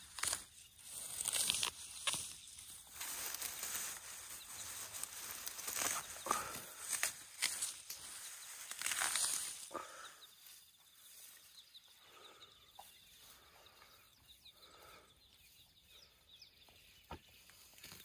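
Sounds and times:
soft rustles: 0.2s - 9.7s.

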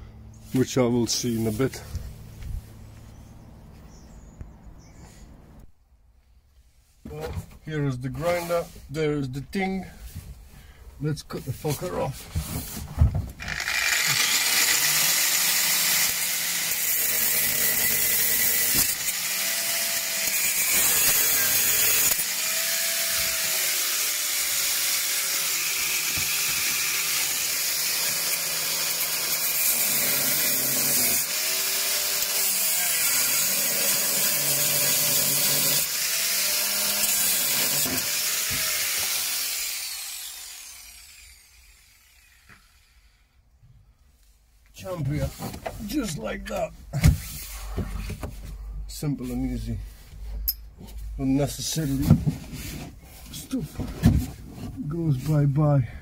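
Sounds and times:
angle grinder cutting sheet metal: 13.4s - 42.8s.

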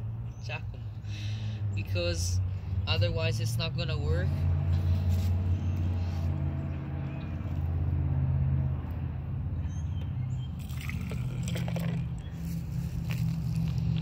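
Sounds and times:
low engine hum: 0.0s - 14.0s
liquid poured from plastic cup: 10.6s - 14.0s.

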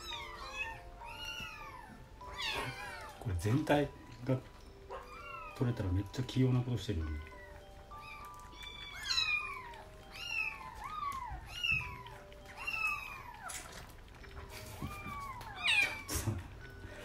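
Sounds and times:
kitten mewing: 14.8s - 16.6s.

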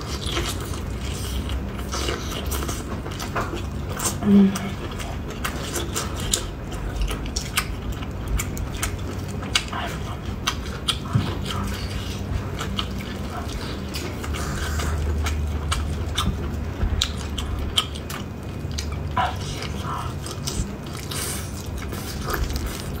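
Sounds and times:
biting and chewing meat: 0.0s - 23.0s
steady low hum: 0.0s - 23.0s.

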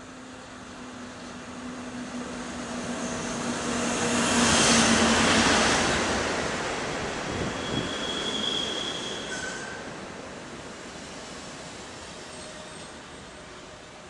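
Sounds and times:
train rumbling past: 0.2s - 14.0s
high wheel squeal: 7.5s - 9.8s.

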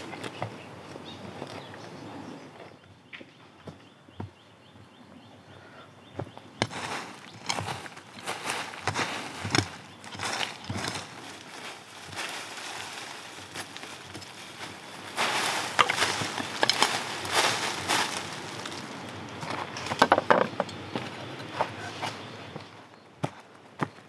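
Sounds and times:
blade hacking into dry soil: 6.6s - 11.2s
leaves crackling: 6.7s - 20.2s.

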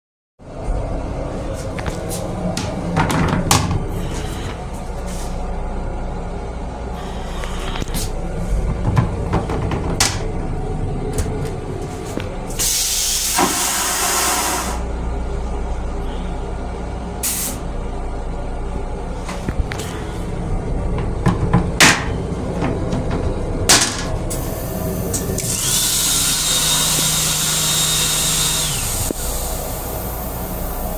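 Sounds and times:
low train rumble: 0.4s - 14.2s, 14.8s - 25.4s
toilet flushing hiss: 12.6s - 14.8s.

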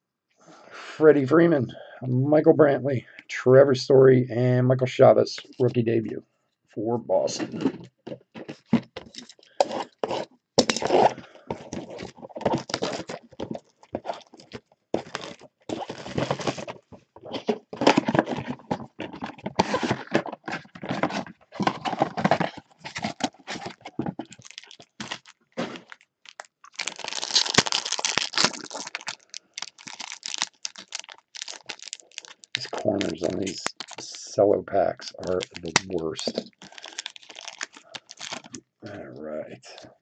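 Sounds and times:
cellophane crinkling and tearing: 7.3s - 38.7s
cardboard box rustling and knocking: 15.0s - 25.8s.

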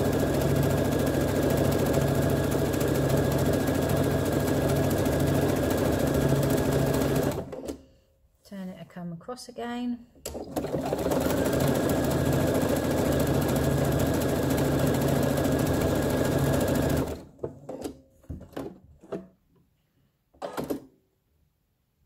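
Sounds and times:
sewing machine stitching: 0.0s - 7.8s, 10.2s - 19.3s, 20.4s - 20.9s.

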